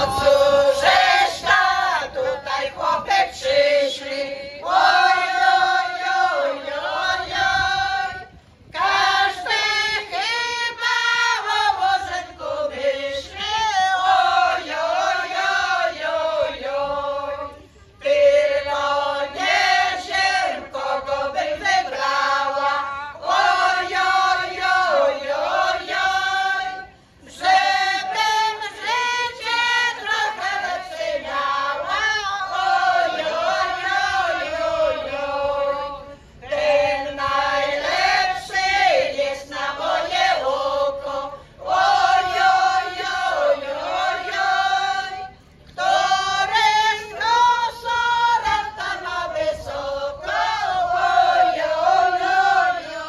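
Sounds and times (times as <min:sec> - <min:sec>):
women's choir singing: 0:00.0 - 0:53.0.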